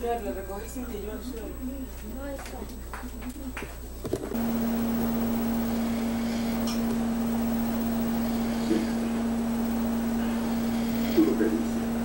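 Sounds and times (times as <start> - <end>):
low machine hum: 3.3 - 12.0.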